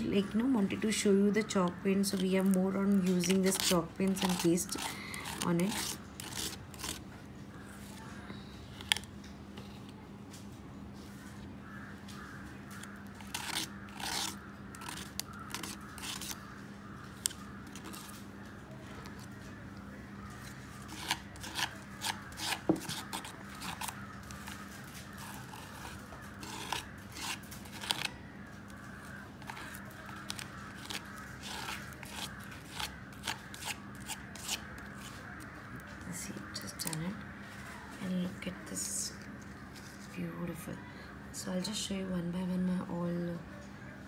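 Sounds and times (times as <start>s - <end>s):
palette knife scraping paste: 0.3s - 7.0s, 12.7s - 18.2s, 20.4s - 28.1s, 28.7s - 35.6s.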